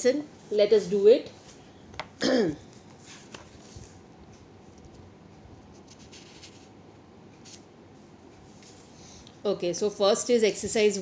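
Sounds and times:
rustling and scraping: 2.8 - 4.0, 4.6 - 6.8
room hiss: 5.3 - 11.0.

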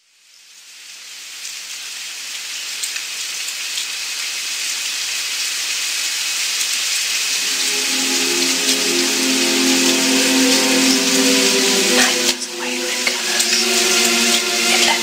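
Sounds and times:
steady rain: 0.0 - 15.0
low sustained music notes: 7.2 - 15.0.

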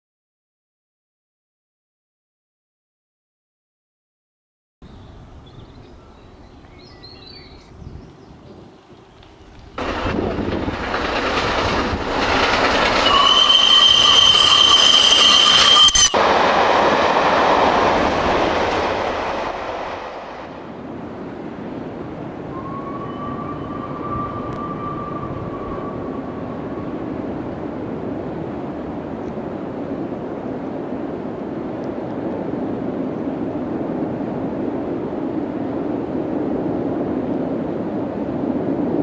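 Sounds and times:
steam train rushing past: 9.5 - 31.8.

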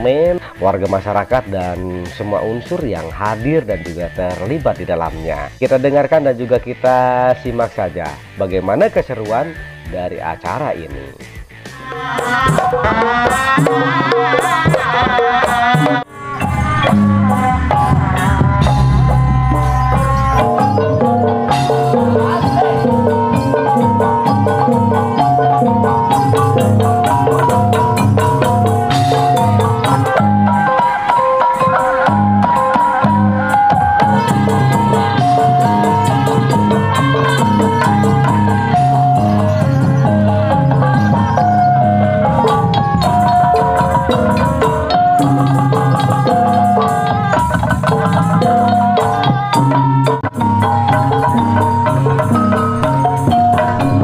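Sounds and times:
metallophones playing quick melody: 7.4 - 54.0
low gong tones: 16.0 - 30.9, 48.4 - 54.0.

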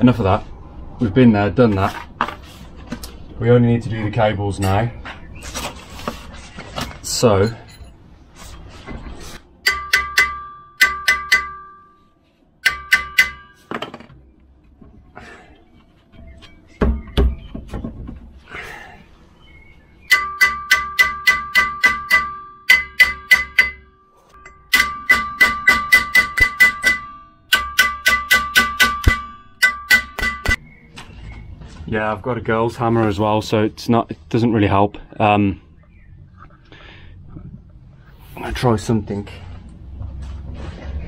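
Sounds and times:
hammer blows on metal disc: 9.6 - 11.9, 12.6 - 13.7, 20.1 - 30.6.

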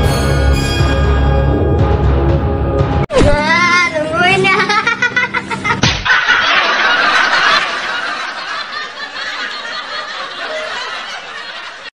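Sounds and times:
hearty laughter: 4.5 - 11.9.

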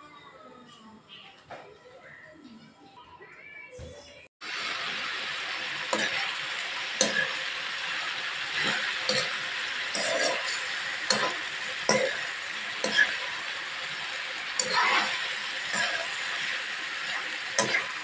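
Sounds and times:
food sizzling in a wok: 4.4 - 18.0
metal utensil scraping a pan: 5.9 - 7.5, 8.4 - 18.0.

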